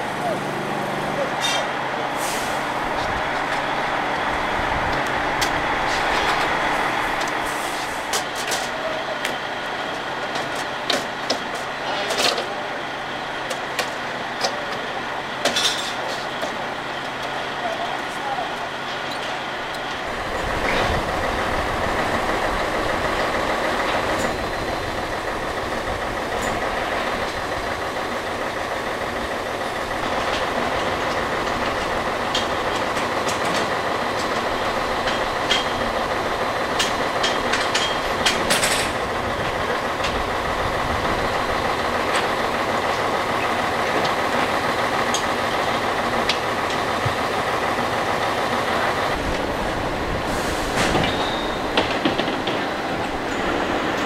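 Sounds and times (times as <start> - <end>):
heavy machinery drone: 0.0 - 54.0
metal clanks and rattles: 15.4 - 16.6, 36.7 - 40.3.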